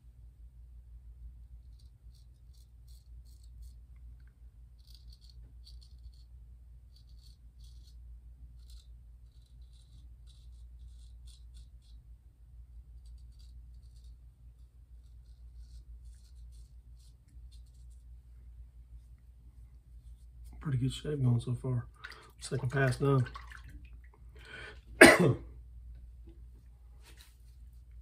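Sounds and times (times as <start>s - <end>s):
razor scraping stubble: 1.6s - 3.8s, 4.8s - 12.0s, 12.8s - 18.1s.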